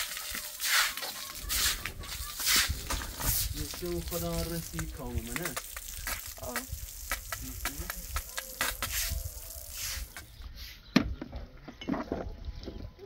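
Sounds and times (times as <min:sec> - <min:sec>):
hose water splashing on concrete: 0:00.0 - 0:10.4
broom scrubbing: 0:00.4 - 0:04.7, 0:08.1 - 0:10.8.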